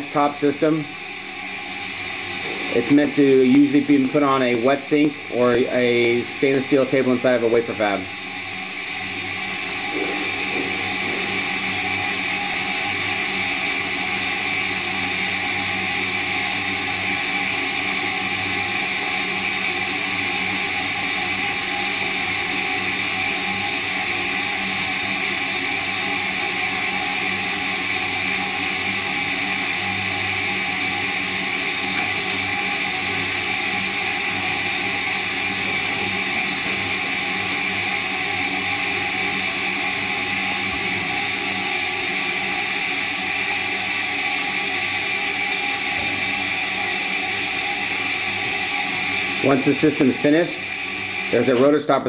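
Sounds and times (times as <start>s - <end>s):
spin dryer rotor whirring: 0.0s - 52.0s.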